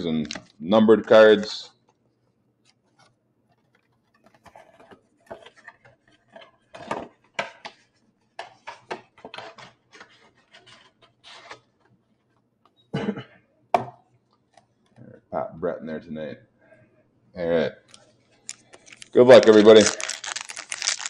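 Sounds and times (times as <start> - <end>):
crinkling of pack wrappers: 17.9 - 21.0.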